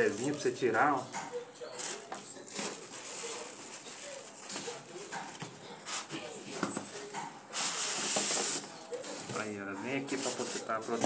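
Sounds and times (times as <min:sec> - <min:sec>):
plastic bag crinkling: 0:00.0 - 0:01.0, 0:01.7 - 0:07.2.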